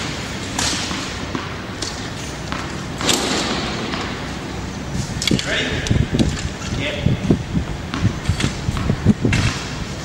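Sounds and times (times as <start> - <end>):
tennis ball hitting racket: 0.5 - 4.4
wind noise on microphone: 4.8 - 10.0.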